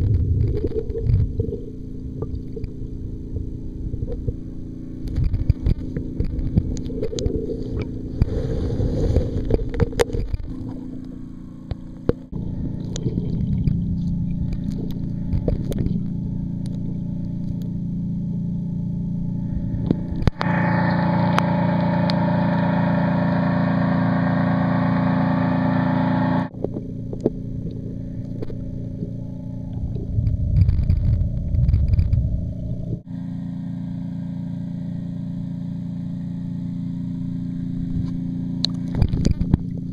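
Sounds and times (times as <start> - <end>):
underwater low hum: 0.0 - 39.9
water moving: 5.1 - 17.3.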